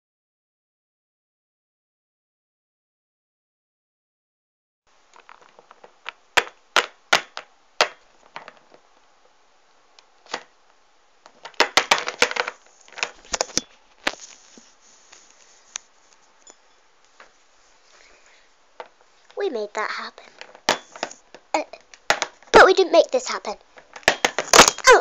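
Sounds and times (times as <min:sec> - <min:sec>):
plastic figurines clacking on table: 0:11.3 - 0:13.6.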